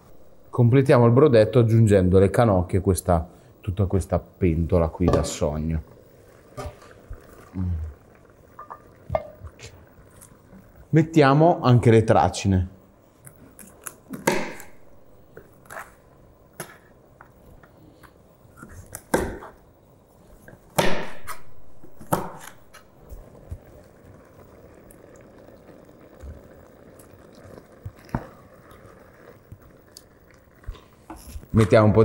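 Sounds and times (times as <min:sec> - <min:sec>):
cooking hiss: 0:00.0 - 0:32.0
wooden spoon stirring in pot: 0:08.4 - 0:10.8, 0:21.8 - 0:32.0.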